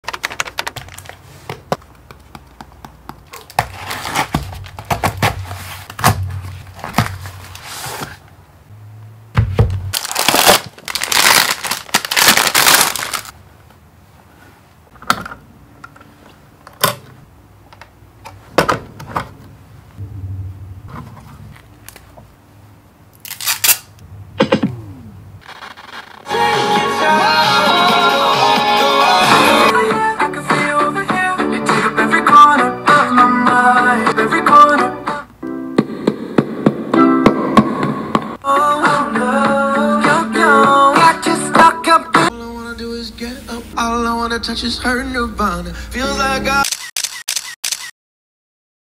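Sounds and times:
plastic bag crinkling: 0:00.0 - 0:01.3, 0:09.9 - 0:13.4
cardboard box knocks and tearing: 0:03.6 - 0:07.5.

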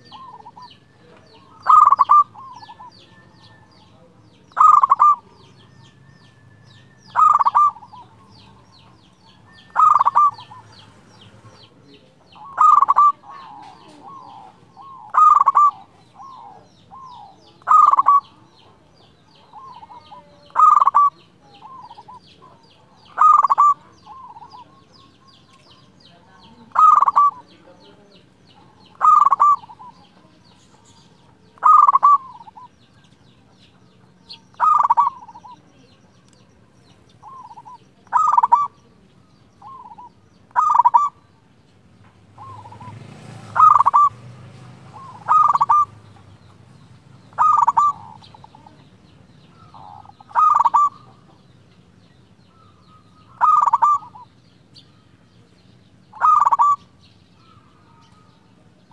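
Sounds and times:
dove cooing: 0:00.0 - 0:41.4, 0:42.3 - 0:51.8, 0:52.5 - 0:54.4, 0:55.9 - 0:58.9.

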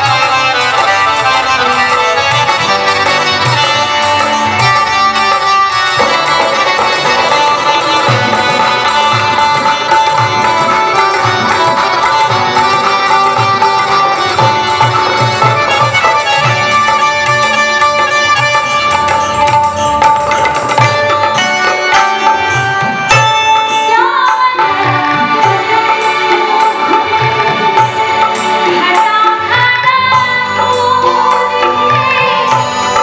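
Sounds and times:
harmonium: 0:00.0 - 0:33.0
plucked string instrument: 0:00.0 - 0:33.0
tabla strokes: 0:00.0 - 0:33.0
woman singing: 0:23.7 - 0:33.0.

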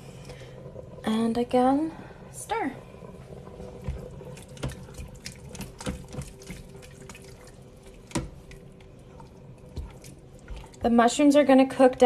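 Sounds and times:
spoon stirring thick chili: 0:04.6 - 0:10.9.

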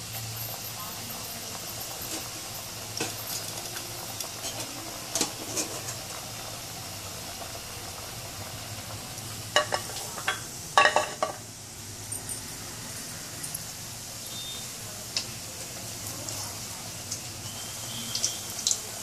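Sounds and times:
crackers sizzling in hot oil: 0:00.0 - 0:19.0.

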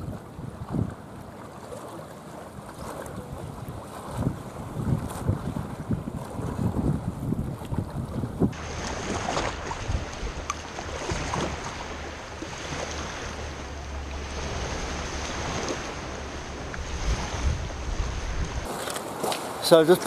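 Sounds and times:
wind buffeting microphone: 0:00.0 - 0:01.4, 0:02.6 - 0:19.3
small waves on shingle beach: 0:08.5 - 0:20.0.

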